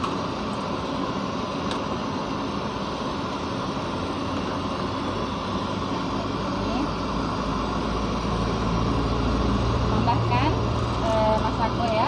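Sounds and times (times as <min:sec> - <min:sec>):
gas stove burner roaring: 0:00.0 - 0:12.0.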